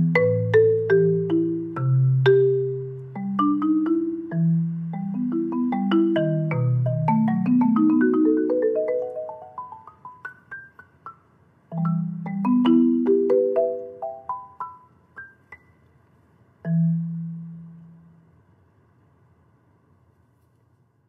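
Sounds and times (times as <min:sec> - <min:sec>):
marimba notes: 0:00.0 - 0:15.7, 0:16.6 - 0:18.2.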